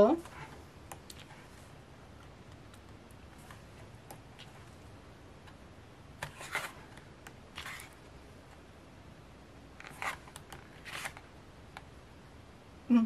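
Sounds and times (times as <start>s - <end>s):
pages turning: 6.2s - 8.1s, 9.8s - 11.3s.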